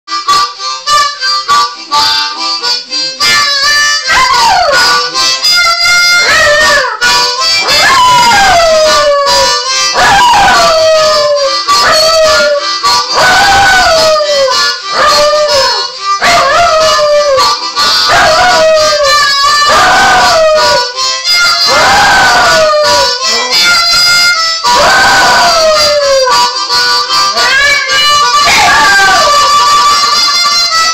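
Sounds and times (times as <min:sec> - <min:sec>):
harmonica playing blues: 0:00.1 - 0:30.9
dog howling: 0:04.0 - 0:05.1, 0:06.2 - 0:07.0, 0:07.6 - 0:20.9, 0:21.6 - 0:23.8, 0:24.7 - 0:26.5, 0:27.3 - 0:29.8.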